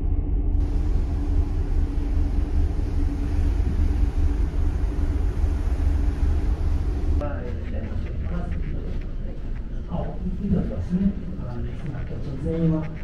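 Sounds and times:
faint steady ship hum: 0.0s - 13.0s
hiss of the sea: 0.6s - 7.2s
wind buffeting microphone: 0.6s - 13.0s.

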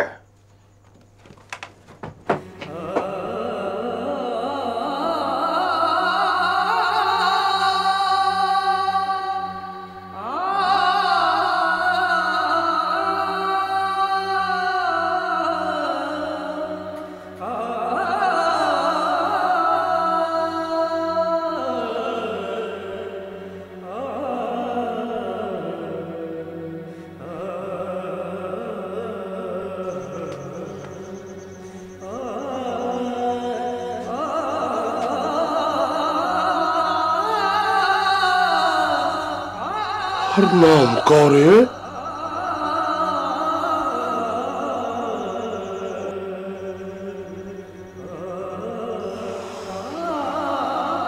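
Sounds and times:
person singing sliding phrases: 40.3s - 41.7s.

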